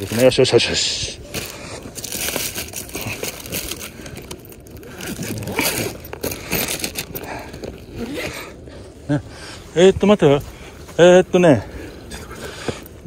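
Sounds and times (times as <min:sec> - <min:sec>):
rummaging crinkling and scraping: 0:00.0 - 0:08.6.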